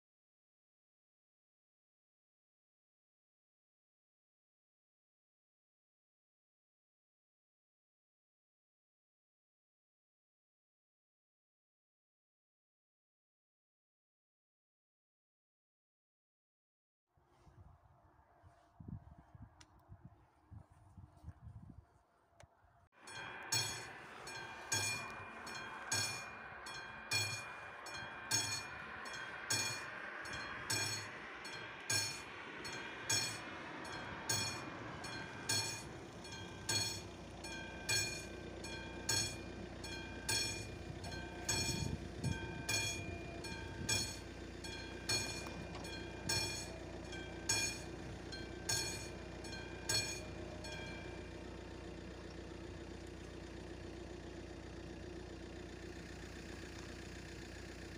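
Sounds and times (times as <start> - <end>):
level crossing bell ringing: 23.1 - 52.2
steady low hum: 23.1 - 54.8.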